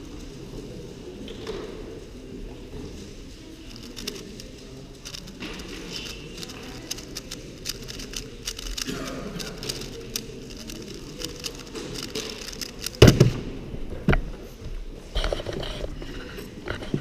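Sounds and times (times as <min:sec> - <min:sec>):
puzzle cube clicking: 0:03.7 - 0:13.1.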